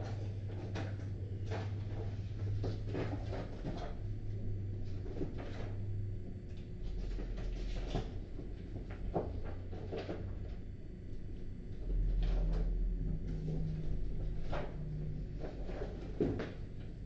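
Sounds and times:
steady low hum: 0:00.0 - 0:17.0
faint knocks and paper rustles: 0:11.8 - 0:16.9.

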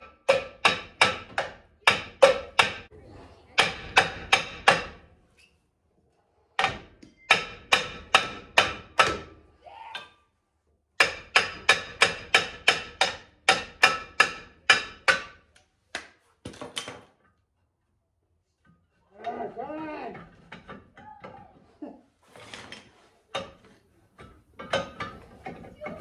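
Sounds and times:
hammer striking metal drum: 0:06.6 - 0:09.3.

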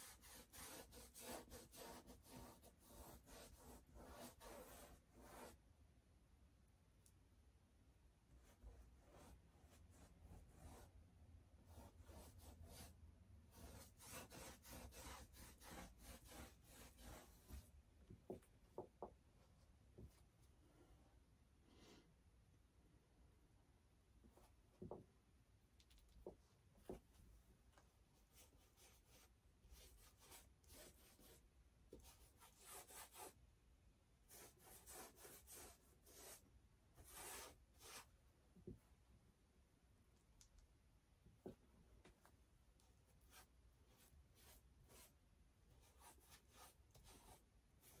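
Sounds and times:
paint brush rubbing on canvas: 0:00.0 - 0:05.6, 0:08.4 - 0:10.9, 0:11.7 - 0:17.7, 0:28.2 - 0:31.4, 0:32.0 - 0:33.4, 0:34.3 - 0:38.1, 0:43.0 - 0:48.0.

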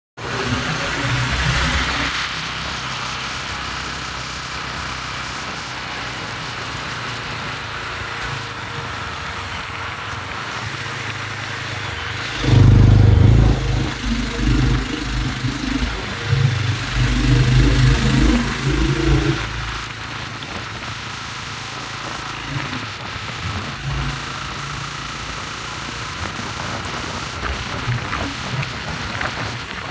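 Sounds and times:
motorcycle engine and road noise: 0:00.2 - 0:29.9
uneven low rumble: 0:12.2 - 0:20.6.

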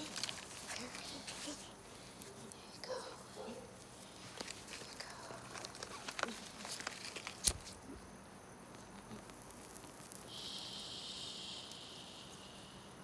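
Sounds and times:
lighter flame hissing: 0:08.8 - 0:12.8.

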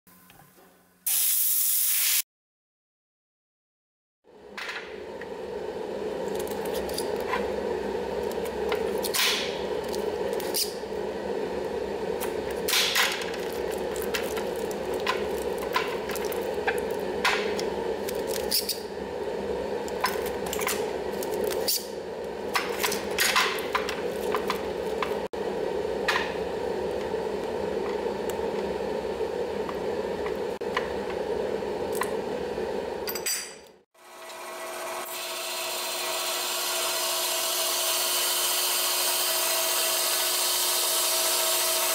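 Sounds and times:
steady hum: 0:04.3 - 0:33.1
bandsaw running: 0:12.0 - 0:19.0, 0:34.1 - 0:41.9.

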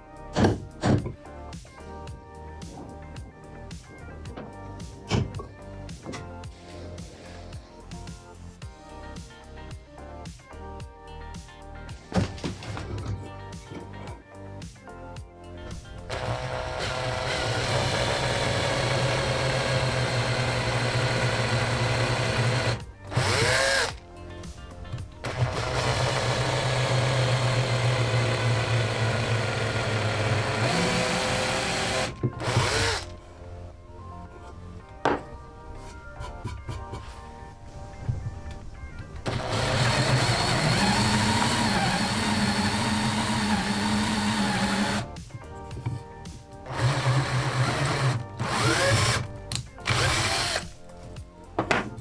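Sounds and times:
electric drill boring into wood: 0:16.1 - 0:24.0, 0:25.2 - 0:33.1, 0:39.2 - 0:45.1, 0:46.7 - 0:50.7.

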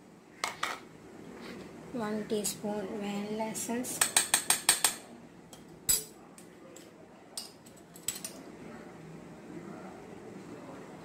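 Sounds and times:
metal spoon clinking against pan: 0:04.0 - 0:06.1.

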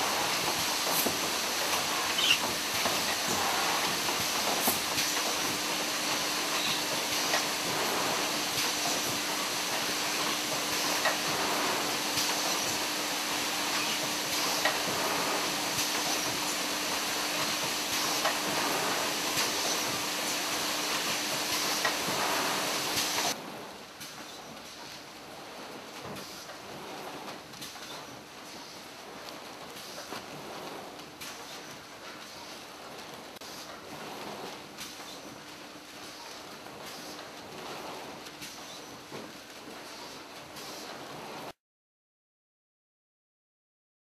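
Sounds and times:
low machine hum: 0:00.0 - 0:23.4
machine hissing: 0:00.0 - 0:23.4.

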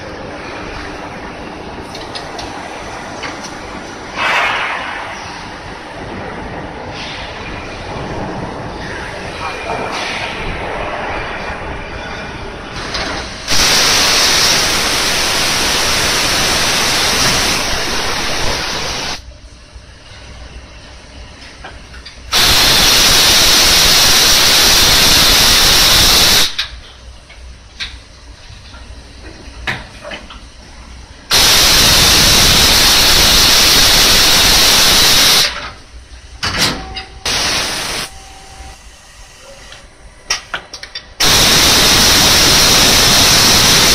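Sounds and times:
loud hissing spray: 0:13.5 - 0:19.2, 0:22.3 - 0:26.6, 0:31.3 - 0:35.6, 0:37.3 - 0:38.1, 0:41.2 - 0:43.9
machine running: 0:13.5 - 0:19.2, 0:22.3 - 0:26.6, 0:31.3 - 0:35.5, 0:37.2 - 0:39.7, 0:41.2 - 0:43.9.

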